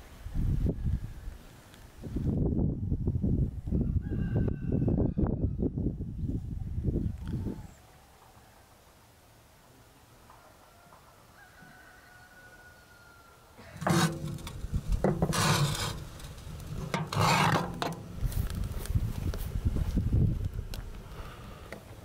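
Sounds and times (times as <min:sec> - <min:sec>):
towel rubbing rusty steel: 0:13.8 - 0:18.5.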